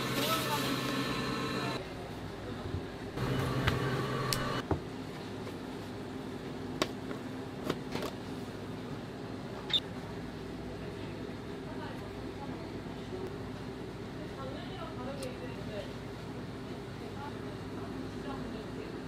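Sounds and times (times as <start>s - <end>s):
kitchen machinery humming: 0.0s - 4.8s.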